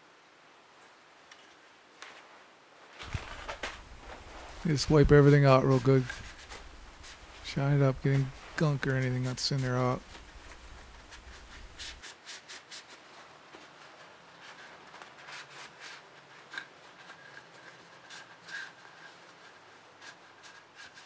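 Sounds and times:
cloth rag rubbing: 3.0 - 16.4.

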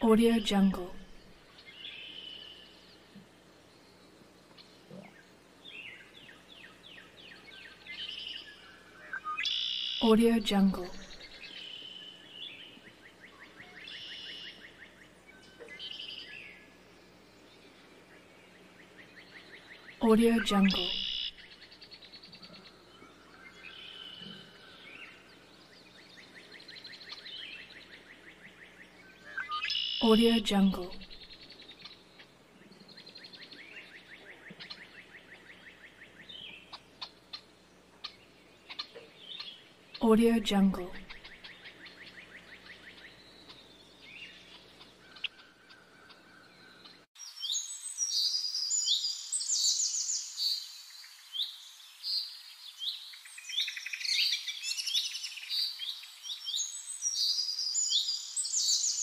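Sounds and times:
birds chirping: 0.0 - 59.0
songbird trilling: 5.0 - 10.0, 10.8 - 16.6, 19.2 - 21.7, 26.2 - 32.3
bird trill: 7.4 - 10.0, 13.2 - 14.8, 19.4 - 25.3, 29.1 - 32.3.

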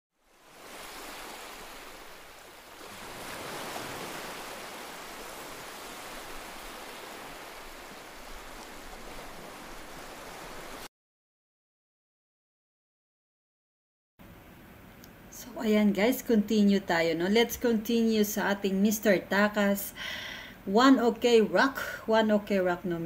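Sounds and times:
ocean surf on a beach: 0.2 - 10.9.

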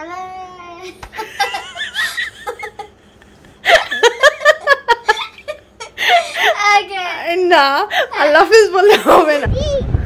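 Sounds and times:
girl laughing: 0.9 - 6.8.

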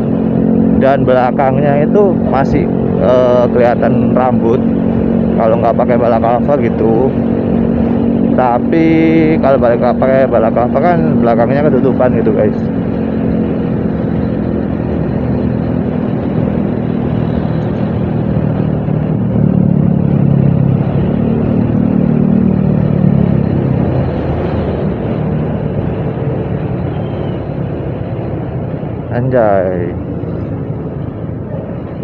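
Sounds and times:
motorcycle engine running: 0.0 - 32.0
wind and road noise: 0.0 - 32.0.

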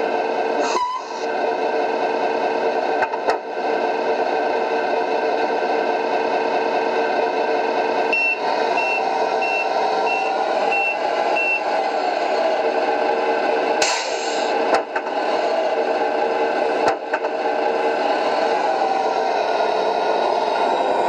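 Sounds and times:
simulated truck diesel engine: 0.0 - 21.0
reversing beeper: 0.7 - 1.2, 8.1 - 11.7.

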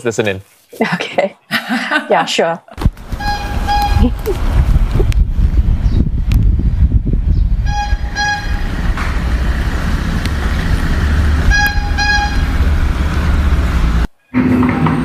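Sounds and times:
steady street rumble: 2.8 - 15.0
horn tooting: 3.1 - 4.3, 7.6 - 9.0, 11.0 - 13.4.

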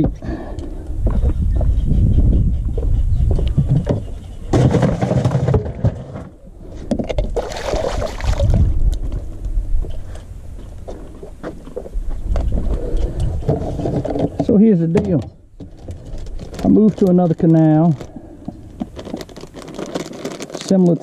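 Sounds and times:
fish splashing in water: 7.4 - 8.7.

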